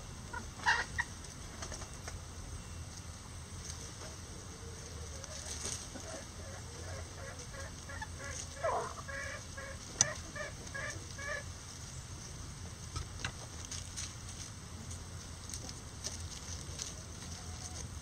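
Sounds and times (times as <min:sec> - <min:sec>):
chickens clucking: 0:00.0 - 0:18.0
chicken squawk: 0:00.3 - 0:01.2, 0:04.5 - 0:11.5.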